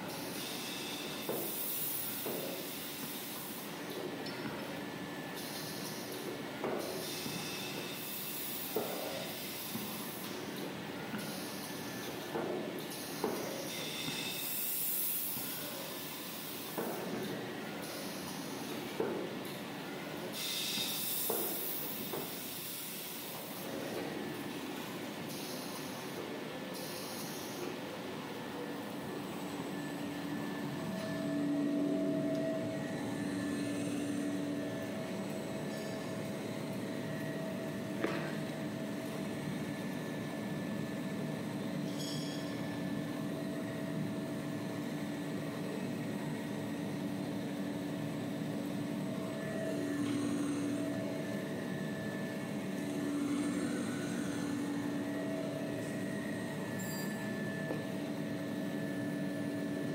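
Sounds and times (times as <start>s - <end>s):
droning tones: 49.3s - 57.6s.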